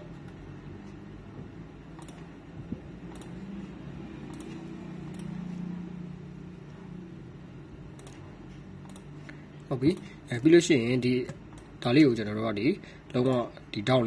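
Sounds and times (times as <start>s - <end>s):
steady low hum: 0.0s - 14.0s
computer mouse clicking: 2.0s - 2.3s, 3.0s - 3.6s, 4.2s - 5.7s, 7.9s - 9.1s.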